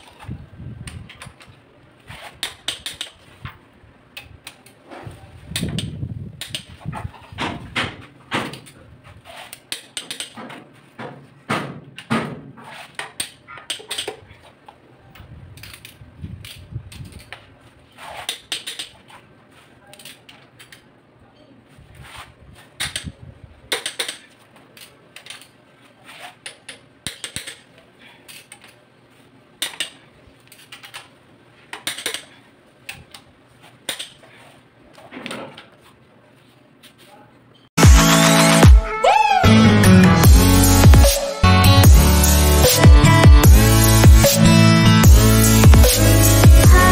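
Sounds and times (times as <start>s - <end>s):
wrenches clicking on metal bolts: 8.4s - 10.6s, 12.8s - 14.3s, 18.1s - 19.1s, 23.7s - 25.6s, 26.2s - 28.8s, 29.6s - 31.1s, 31.7s - 33.3s.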